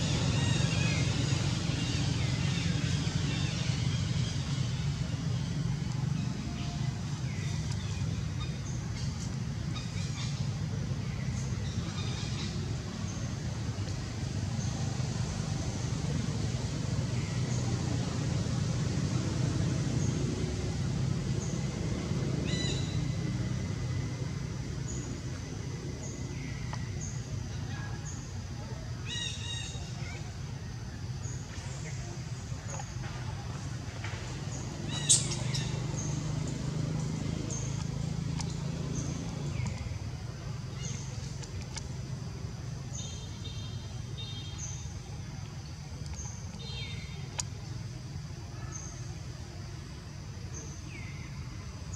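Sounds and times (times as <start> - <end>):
low outdoor rumble: 0.0 - 51.9
faint clicks: 37.0 - 38.6, 40.8 - 41.9, 46.0 - 46.7, 47.3 - 47.7.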